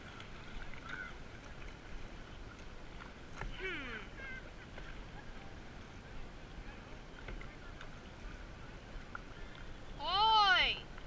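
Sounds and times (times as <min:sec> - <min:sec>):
paddle water swishing and dripping: 0:00.0 - 0:11.0
small waves: 0:00.0 - 0:11.0.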